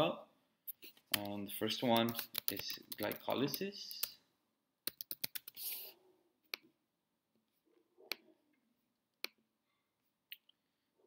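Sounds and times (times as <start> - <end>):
typing on computer keyboard: 1.9 - 4.1, 4.8 - 5.6.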